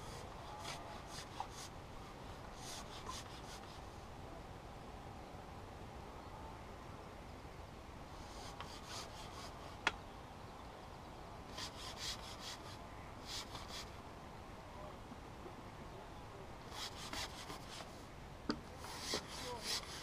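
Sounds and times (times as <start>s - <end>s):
fishing pole rubbing on clothing: 0.0s - 3.8s, 8.2s - 9.8s, 11.5s - 14.0s, 16.7s - 18.1s, 18.8s - 20.0s
faint steady hiss: 0.0s - 20.0s.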